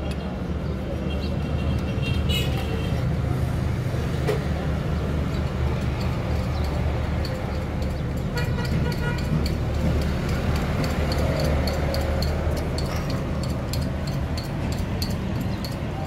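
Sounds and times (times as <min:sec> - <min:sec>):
engine idling: 0:04.8 - 0:16.0.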